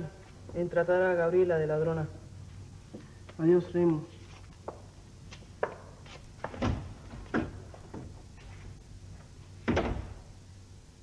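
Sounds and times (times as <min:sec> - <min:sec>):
footsteps on hard floor: 0:04.2 - 0:09.3
door shutting with a bang: 0:09.6 - 0:10.3.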